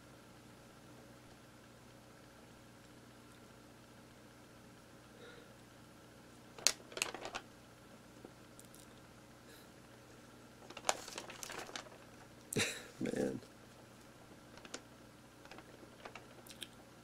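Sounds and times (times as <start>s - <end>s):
paper crinkling and rustling: 6.6s - 7.5s, 10.6s - 12.4s, 14.0s - 16.5s.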